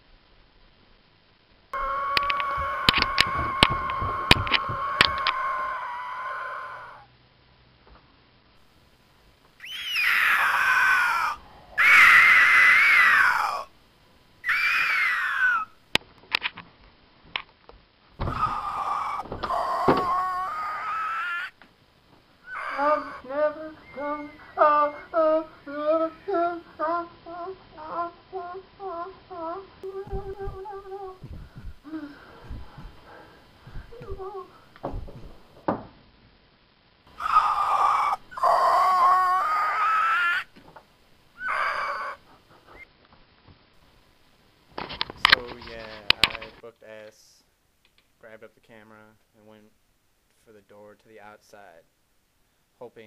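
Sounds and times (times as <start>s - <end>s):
door creaking open: 1.8s - 6.5s, 18.2s - 21.0s, 33.8s - 35.9s
man shrieking: 1.8s - 7.1s, 9.6s - 13.7s, 14.4s - 15.8s, 18.2s - 21.6s, 22.4s - 23.8s, 37.2s - 40.5s, 41.4s - 42.2s
sharp clicks and knocks: 2.2s - 5.4s
soft knocks: 34.8s - 36.0s.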